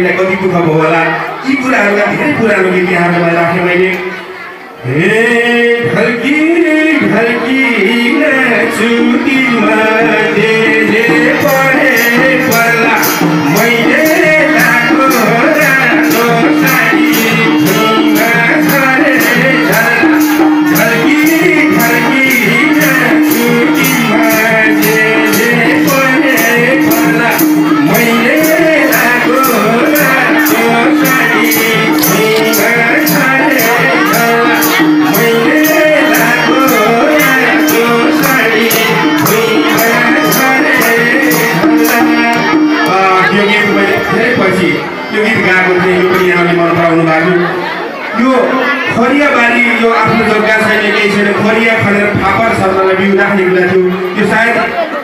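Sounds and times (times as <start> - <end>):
folk song: 0.0 - 55.0
shaker-like percussion: 7.0 - 44.6.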